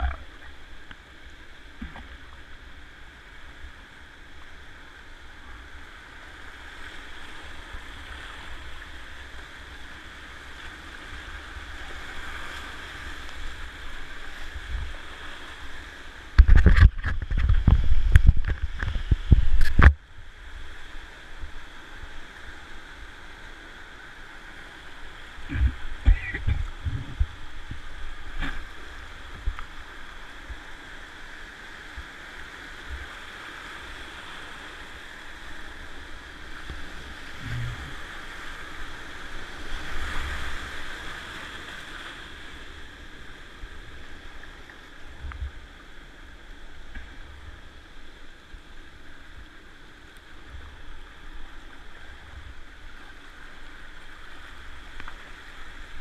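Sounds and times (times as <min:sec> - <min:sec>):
whitewater rapids rushing: 0:25.4 - 0:29.2.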